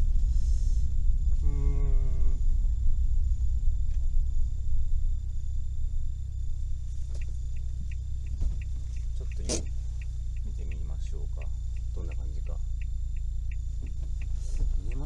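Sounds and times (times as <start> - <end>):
crickets chirping: 0.0 - 15.0
car driving on wet road: 6.4 - 15.0.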